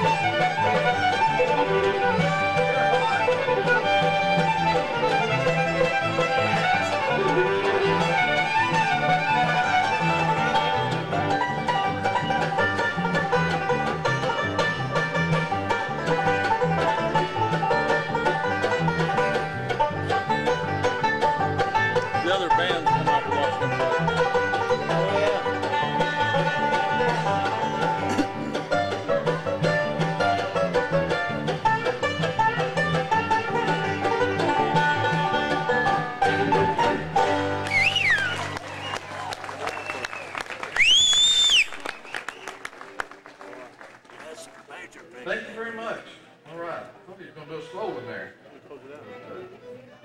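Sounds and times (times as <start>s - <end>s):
banjo picking lead: 0.0s - 39.4s
mandolin and guitar backing: 0.0s - 40.2s, 42.9s - 50.0s.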